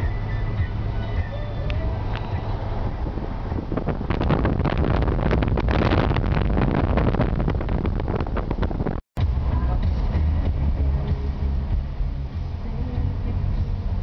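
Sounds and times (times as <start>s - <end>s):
engine and road rumble: 0.0s - 14.0s
wind buffeting microphone: 0.1s - 9.0s.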